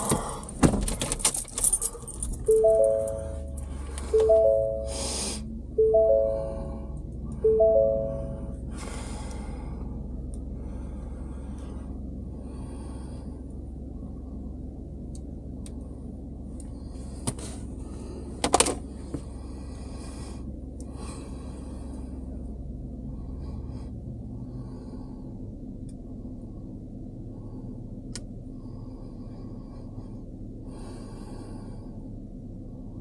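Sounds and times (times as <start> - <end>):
low hum inside truck cab: 0.0 - 33.0.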